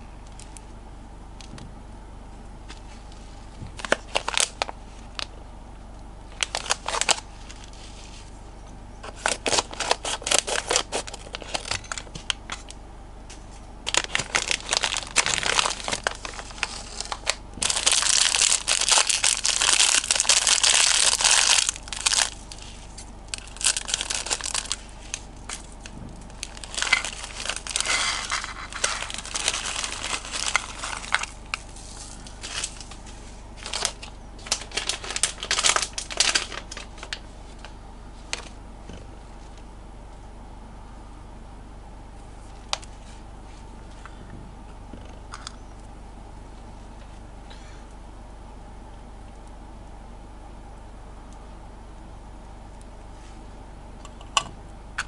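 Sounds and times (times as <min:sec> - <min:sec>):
plastic packaging crinkling: 0:02.8 - 0:05.3, 0:06.3 - 0:08.4, 0:09.0 - 0:12.8, 0:13.8 - 0:38.6.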